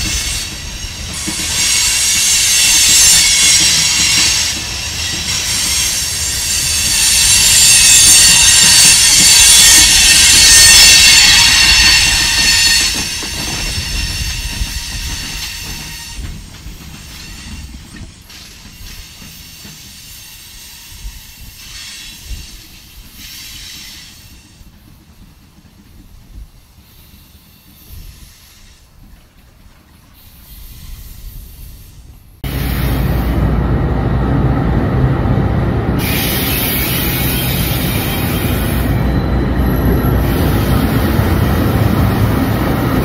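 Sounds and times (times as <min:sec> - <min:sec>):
wheels squealing on rails: 0:00.0 - 0:33.5, 0:35.9 - 0:43.0
train cars rolling past: 0:00.0 - 0:43.0.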